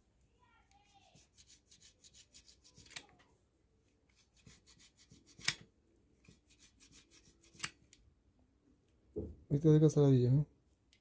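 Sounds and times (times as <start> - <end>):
knife scraping leather: 6.3 - 7.8.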